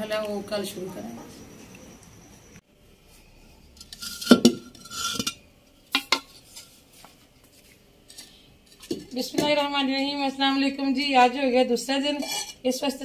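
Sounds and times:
clay pots knocking and clinking: 3.8 - 6.5, 8.7 - 9.6.

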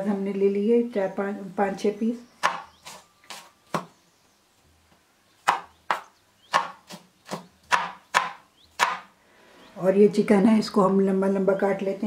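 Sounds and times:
knife chopping on cutting board: 2.4 - 3.9, 5.4 - 9.1.

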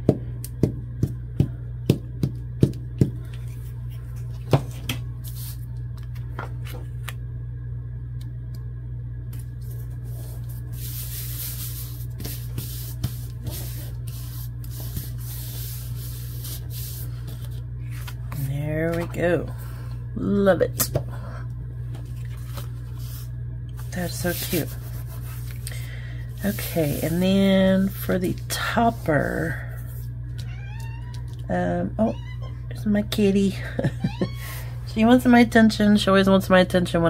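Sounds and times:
hands rubbing paper flat: 5.2 - 5.6, 9.6 - 18.4, 22.1 - 25.8, 26.4 - 29.2.

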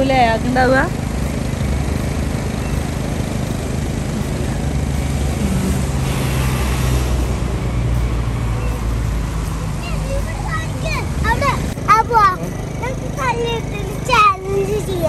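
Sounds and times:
car engine hum: 0.0 - 15.0
road noise inside car: 0.0 - 15.0.

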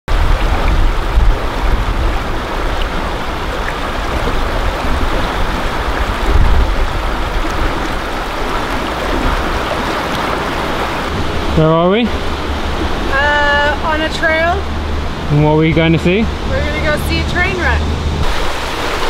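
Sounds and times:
stream burbling over stones: 0.1 - 11.4, 18.2 - 19.0
deeper rumbling water surges: 0.1 - 19.0.

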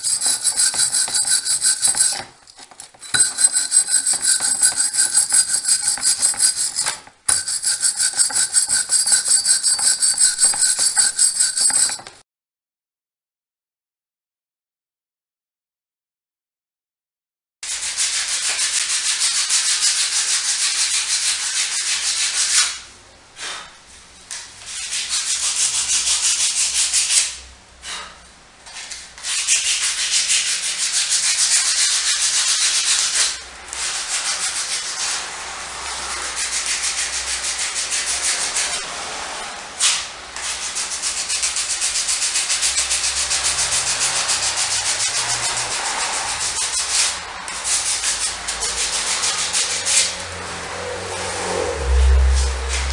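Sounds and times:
sandpaper rubbing strokes: 0.0 - 2.2, 17.7 - 22.8, 28.8 - 50.2.

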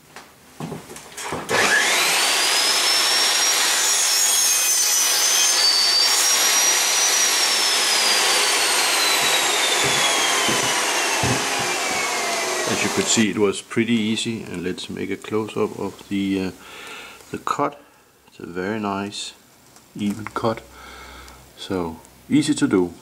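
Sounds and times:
miter saw cutting aluminium: 1.2 - 13.3.

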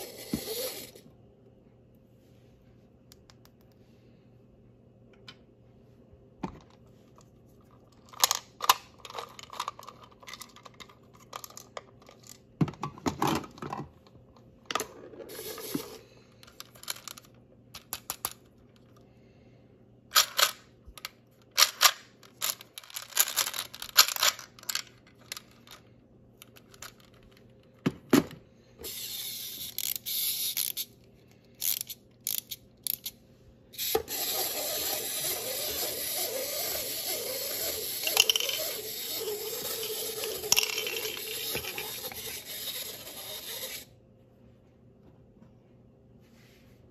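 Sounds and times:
plastic toys clicking and tapping: 8.0 - 13.8, 33.8 - 43.8.

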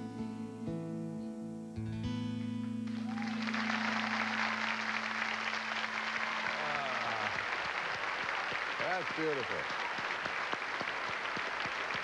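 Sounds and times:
acoustic guitar and keyboard chord: 0.0 - 2.8
audience applause: 2.9 - 12.0.

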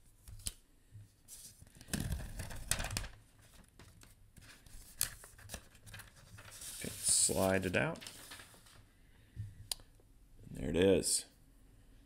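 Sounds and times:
paper tearing and crinkling: 5.0 - 8.8.

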